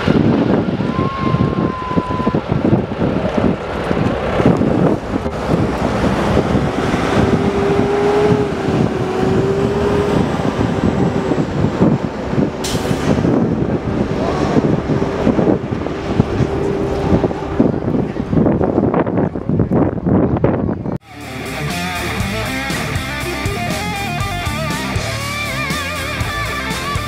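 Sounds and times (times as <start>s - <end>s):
wind on microphone: 0.0s - 21.0s
jet engines rumbling with whine: 0.0s - 27.0s.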